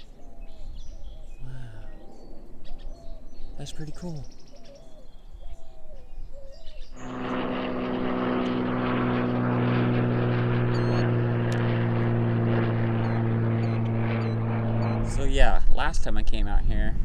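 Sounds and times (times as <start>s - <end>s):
propeller airplane engine droning: 0.0s - 6.0s, 6.6s - 17.0s
faint bird chirps: 10.7s - 11.1s.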